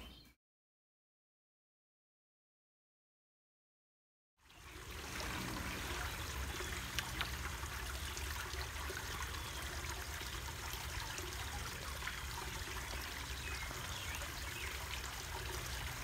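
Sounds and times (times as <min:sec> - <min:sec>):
water trickling into pond: 0:04.4 - 0:16.0.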